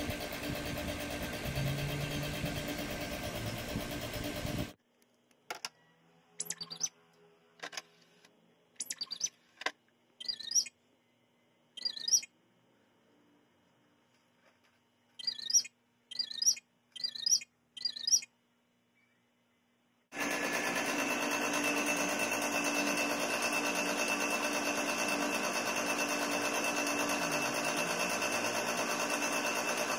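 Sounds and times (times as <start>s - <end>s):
robot beeps and whistles: 6.4s - 6.9s, 8.8s - 9.3s, 10.2s - 10.7s, 11.8s - 12.3s.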